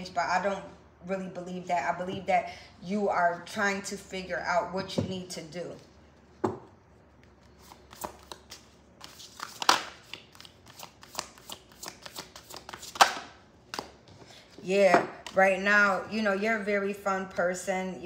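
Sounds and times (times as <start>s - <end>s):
cards being shuffled: 7.2s - 14.2s.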